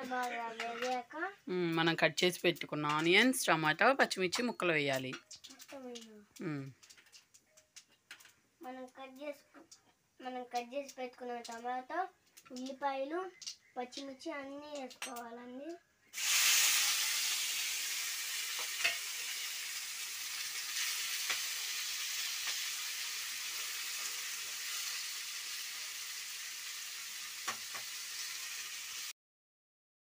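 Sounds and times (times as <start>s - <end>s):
vegetables sizzling in hot oil: 16.2s - 29.2s.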